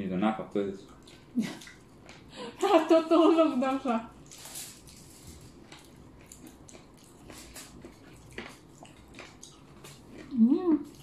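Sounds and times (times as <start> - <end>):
chewing and mouth smacks: 0.8 - 2.3, 4.1 - 11.0.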